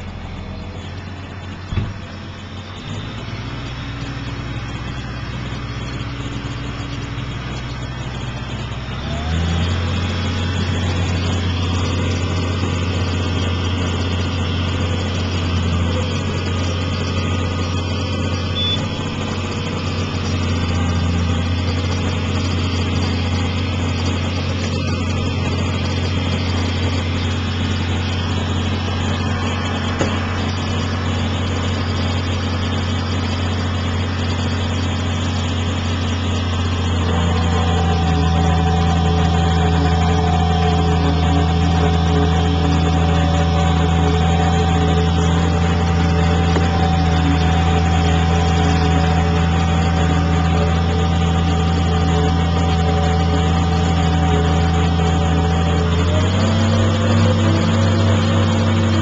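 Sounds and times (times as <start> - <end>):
humming tones: 0.0 - 59.0
tractor engine drone: 0.0 - 59.0.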